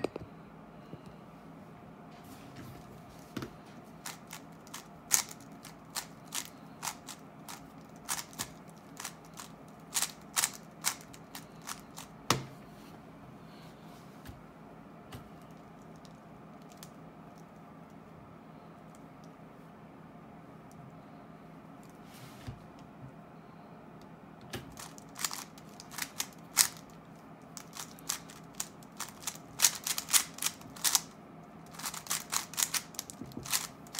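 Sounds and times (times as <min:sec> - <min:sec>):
speed cube clicking: 0:04.0 - 0:12.1, 0:24.7 - 0:26.8, 0:27.6 - 0:31.1, 0:31.7 - 0:33.9.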